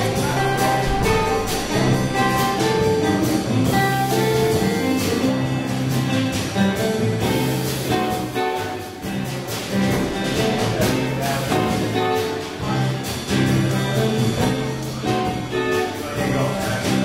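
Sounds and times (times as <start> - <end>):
drum hits: 0.0 - 17.0
rock band playing instrumental: 0.0 - 17.0.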